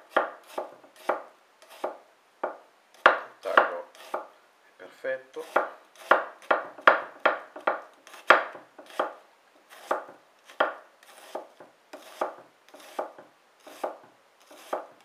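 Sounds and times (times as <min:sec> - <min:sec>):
knife slicing onion on board: 0:00.0 - 0:04.3, 0:05.4 - 0:15.0.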